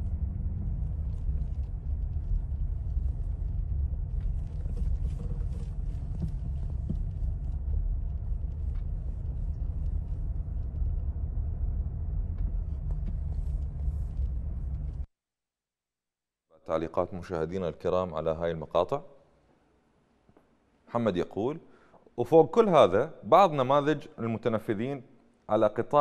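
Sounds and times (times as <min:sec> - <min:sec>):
low rumble: 0:00.0 - 0:15.1.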